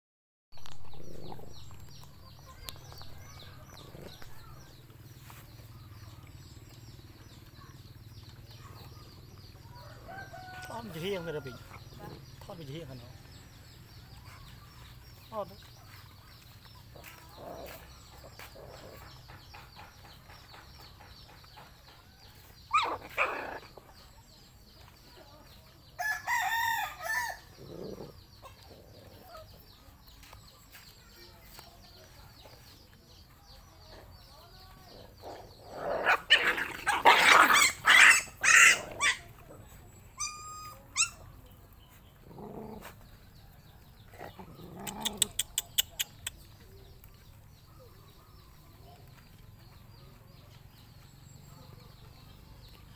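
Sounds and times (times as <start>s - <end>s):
rooster crowing: 9.7s - 11.6s, 26.0s - 27.4s.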